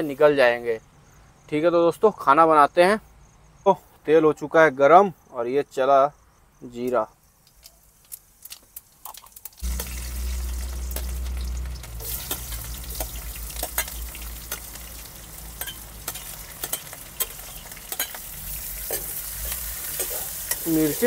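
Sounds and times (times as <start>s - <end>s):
onions sizzling in hot oil: 7.4s - 21.0s
low rumble: 9.6s - 15.6s
stirring: 9.6s - 21.0s.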